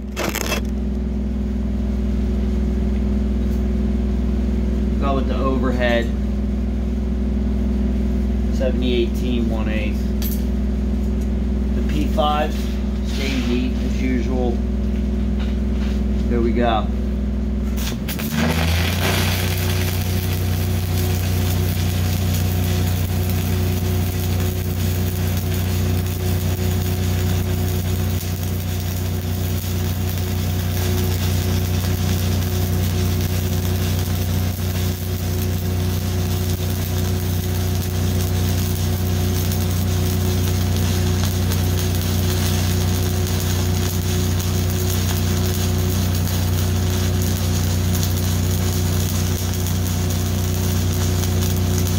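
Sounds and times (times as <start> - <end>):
welding arc crackling: 0.0 - 0.9, 17.6 - 51.9
welding machine drone: 0.0 - 51.9.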